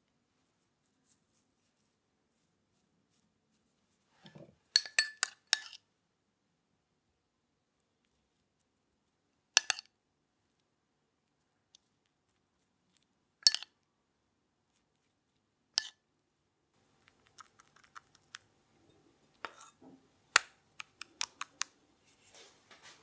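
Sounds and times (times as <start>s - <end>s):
light ticks and handling sounds: 0.4s - 4.5s
metal spoon clinking against bowl: 4.8s - 5.8s, 13.4s - 13.7s.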